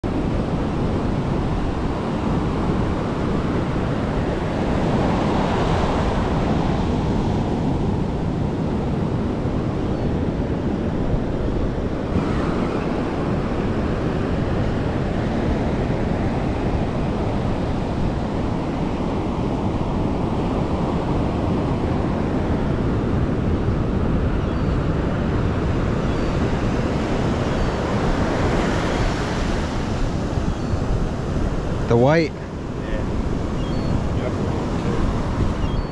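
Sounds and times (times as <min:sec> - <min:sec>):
wind buffeting microphone: 0:00.0 - 0:35.9
ocean surf breaking: 0:00.1 - 0:35.9.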